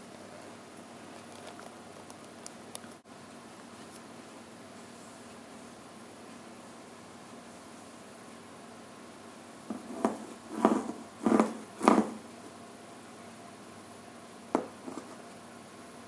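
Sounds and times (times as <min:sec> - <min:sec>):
tap on cardboard: 0:14.5 - 0:15.0.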